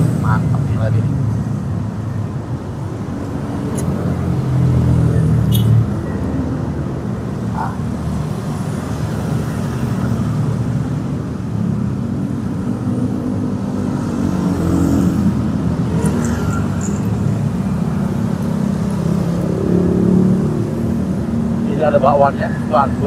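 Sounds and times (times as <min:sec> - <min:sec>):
passing cars and motorcycles: 0:00.0 - 0:23.0
road traffic rumble: 0:00.0 - 0:23.0.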